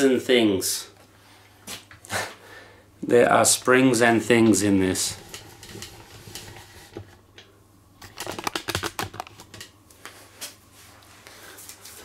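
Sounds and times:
hard parts clicking and rattling: 8.0 - 9.7.

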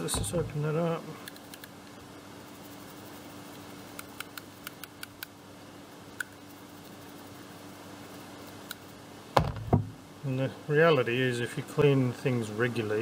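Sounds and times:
faint steady hum: 0.0 - 13.0
small scissors clicking: 1.2 - 1.7, 4.0 - 5.3.

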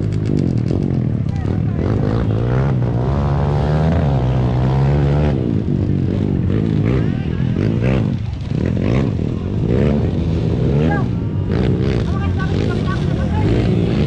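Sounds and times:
motorcycle engine revving: 0.0 - 14.0.

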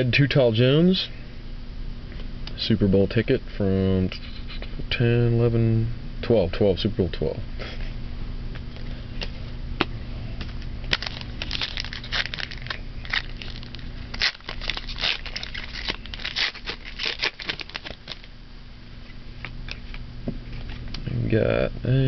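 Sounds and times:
foil pack tearing and crinkling: 10.9 - 18.3.

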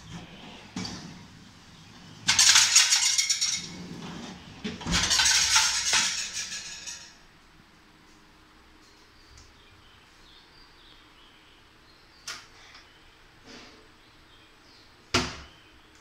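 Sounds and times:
glass plates rattling: 2.2 - 7.2
wire basket rattling on drawer runners: 4.7 - 7.1.

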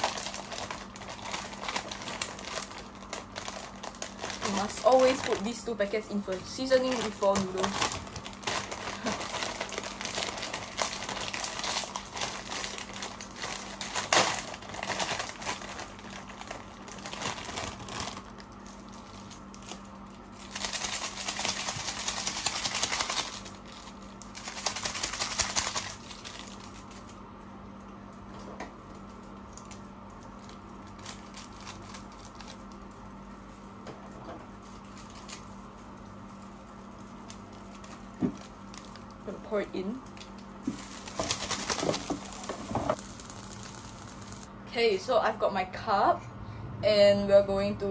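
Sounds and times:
plastic sachets crinkling and tearing: 0.0 - 27.2, 28.9 - 33.7, 34.5 - 44.5
steady low hum: 0.0 - 47.9.

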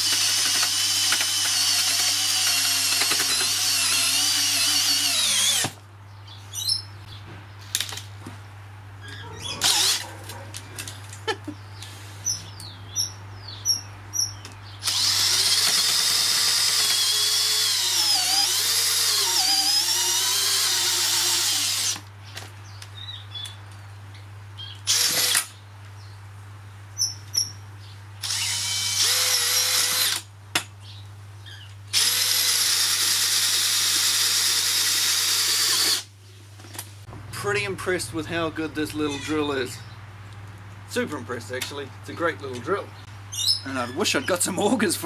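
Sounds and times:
hammer drill motor whine: 0.0 - 5.7, 14.8 - 22.0, 24.9 - 25.5, 28.2 - 30.2, 31.9 - 36.0
auger bit drilling into soil: 0.0 - 5.8, 14.8 - 22.0, 24.9 - 25.5, 28.2 - 30.2, 31.9 - 36.1.

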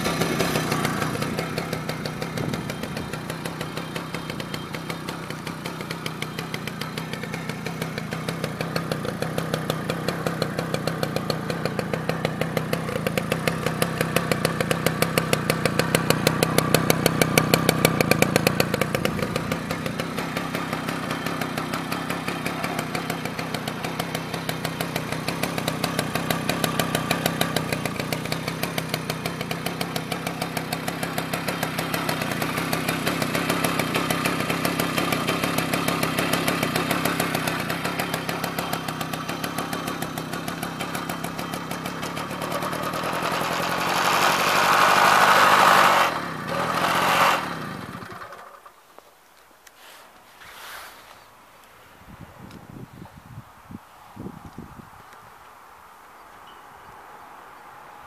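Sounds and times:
moped two-stroke engine running: 0.0 - 48.8.

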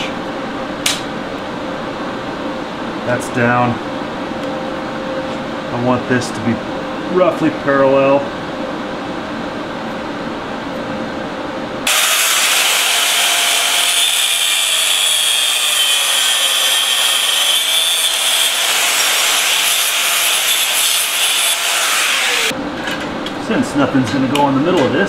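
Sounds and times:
angle grinder cutting metal: 11.9 - 22.5.

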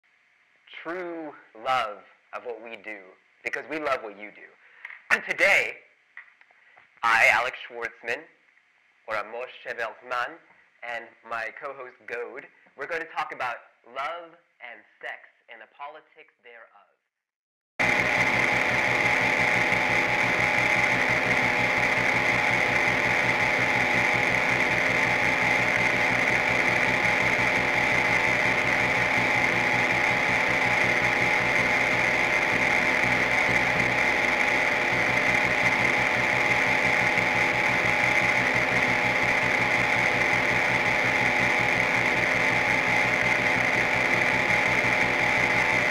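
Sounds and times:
harsh noise music buzz: 17.8 - 45.9
held tones: 17.8 - 45.9.

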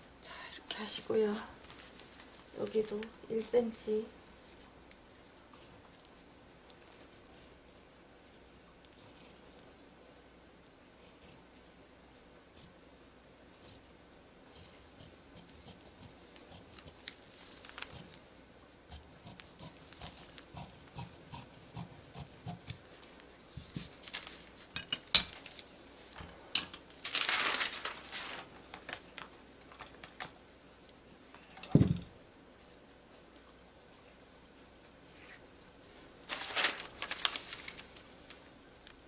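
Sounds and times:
paper rustling: 1.6 - 3.1, 16.3 - 18.2, 22.8 - 24.7, 25.3 - 30.4, 36.2 - 39.0.

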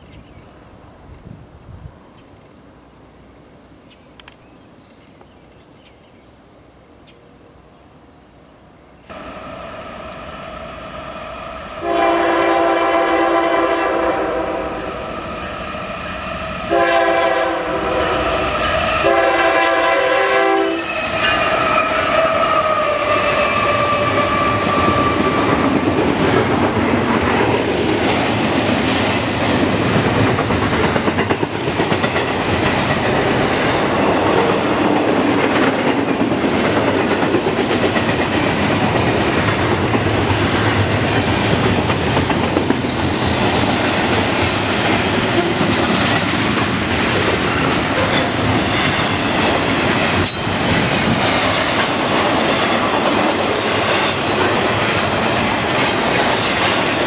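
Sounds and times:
diesel locomotive engine: 9.1 - 57.0
locomotive air horn blasts: 11.7 - 15.2, 16.6 - 25.3.

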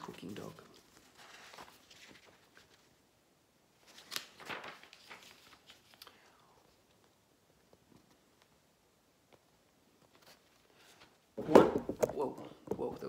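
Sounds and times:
paper rustling and crinkling: 0.0 - 3.1, 3.8 - 7.1, 10.0 - 11.1.

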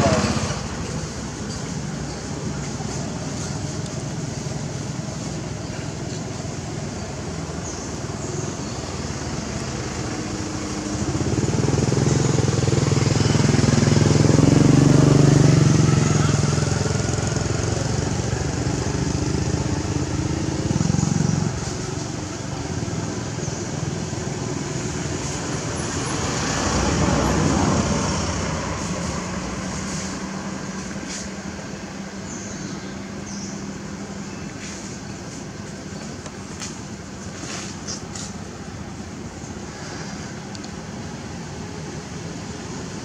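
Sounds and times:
motor vehicle passing by: 0.0 - 5.6, 7.7 - 34.0.

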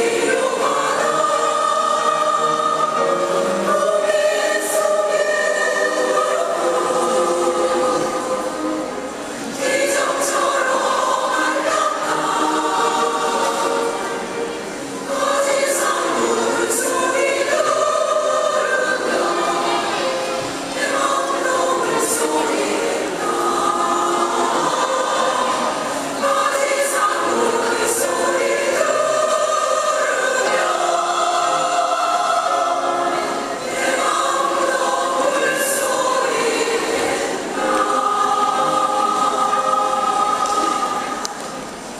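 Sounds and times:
women's choir singing: 0.0 - 41.9.

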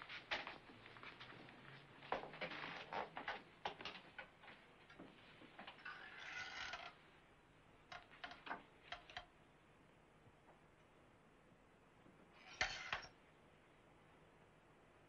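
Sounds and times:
objects clicking and knocking: 7.9 - 9.3.

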